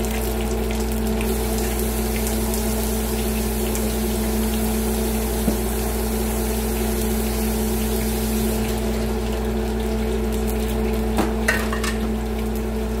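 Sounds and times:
steady hum: 0:01.1 - 0:10.4.

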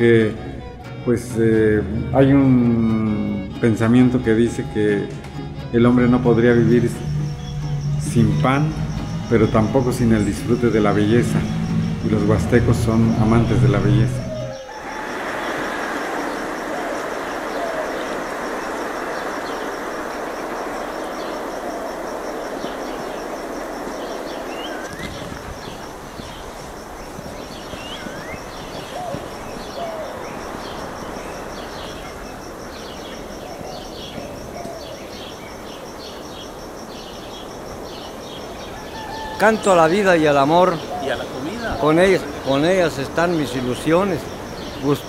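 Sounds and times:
rushing noise: 0:00.0 - 0:34.1
bird calls: 0:00.0 - 0:45.0
high-pitched pulsing trill: 0:05.5 - 0:14.7.

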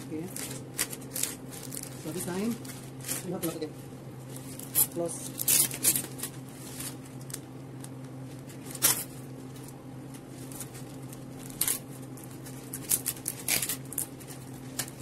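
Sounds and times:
steady low hum: 0:00.0 - 0:15.0
wrapping paper rustling: 0:00.1 - 0:15.0.

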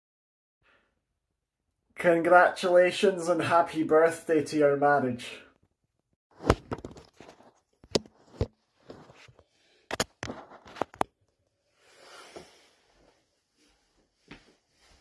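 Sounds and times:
soft rubbing and rustling: 0:12.2 - 0:15.0.

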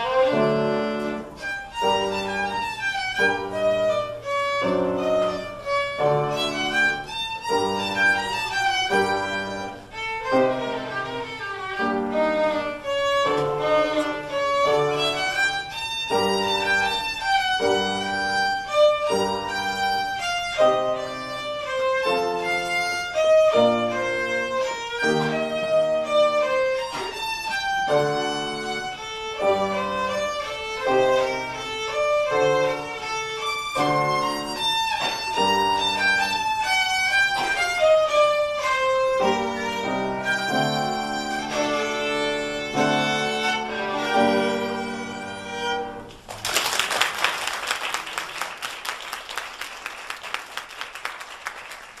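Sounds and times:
solo violin playing: 0:00.0 - 0:46.2
audience applause: 0:46.3 - 0:52.0.

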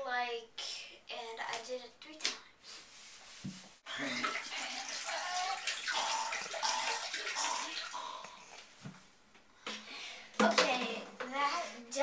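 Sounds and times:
liquid splashing into toilet bowl: 0:03.9 - 0:08.4.

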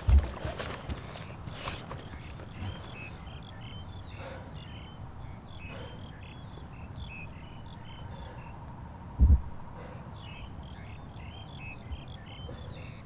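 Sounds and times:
soft rustles: 0:00.0 - 0:03.1
small birds chirping: 0:00.0 - 0:13.0
steady low rumble: 0:02.6 - 0:12.4.

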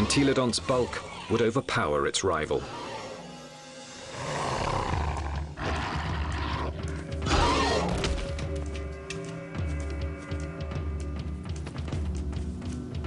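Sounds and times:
animals snarling and roaring: 0:00.0 - 0:01.5, 0:02.4 - 0:08.4
background music: 0:00.0 - 0:13.0.

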